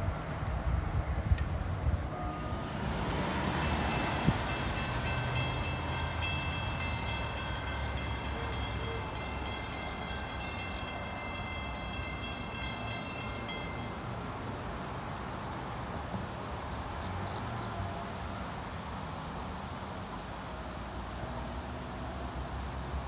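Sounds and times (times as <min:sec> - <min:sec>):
train rumble: 0:00.0 - 0:22.6
high-pitched ringing tone: 0:02.1 - 0:14.2.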